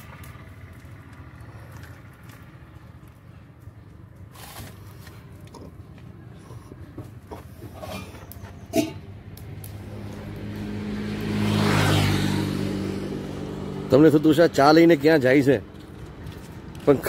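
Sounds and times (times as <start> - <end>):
vehicle engine approaching: 0.0 - 17.0.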